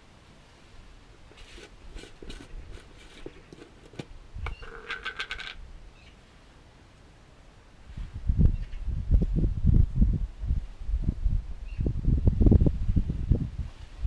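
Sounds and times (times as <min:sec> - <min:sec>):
small metallic rattles: 0:01.3 - 0:05.6.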